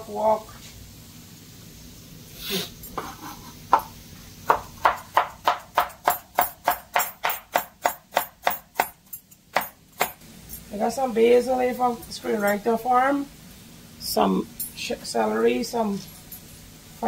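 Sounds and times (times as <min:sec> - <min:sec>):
knife chopping herbs on board: 0:03.0 - 0:10.2.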